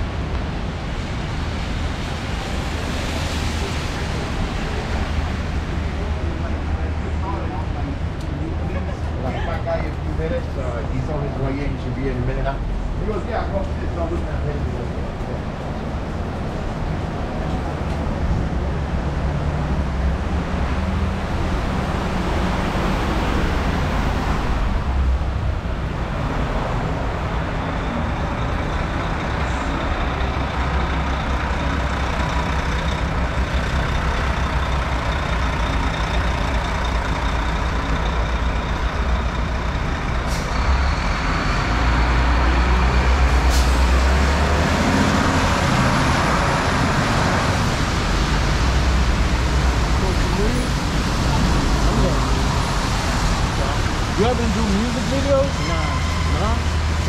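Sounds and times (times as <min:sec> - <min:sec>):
bus and truck engines running: 0:00.0 - 0:57.0
rain and wet tyres hissing: 0:00.4 - 0:06.4, 0:47.0 - 0:57.0
air brakes hiss: 0:43.4 - 0:43.9.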